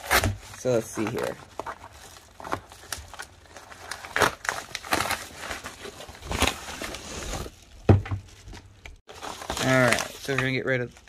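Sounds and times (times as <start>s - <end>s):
paper mailer crinkling: 9.1s - 11.0s.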